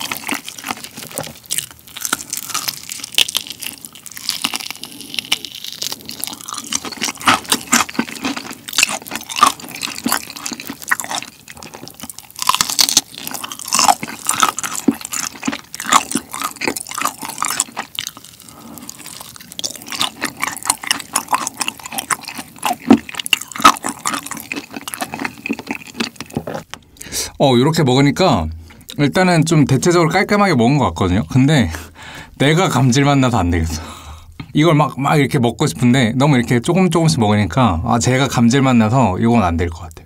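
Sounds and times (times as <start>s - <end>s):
chewing crunchy fried chicken: 0.0s - 27.1s.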